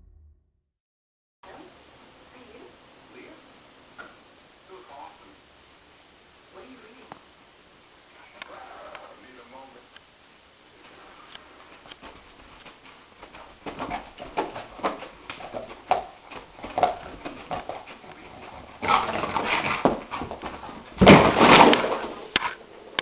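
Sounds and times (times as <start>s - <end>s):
loud thump and clatter: 18.8s - 22.2s.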